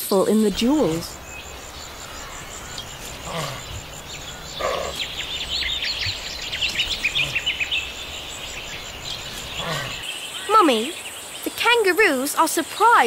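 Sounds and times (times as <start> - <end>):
steady background hiss: 0.0 - 13.0
high bird chirps: 0.3 - 13.0
faint high ticking: 0.5 - 10.0
low bird call: 0.5 - 11.5.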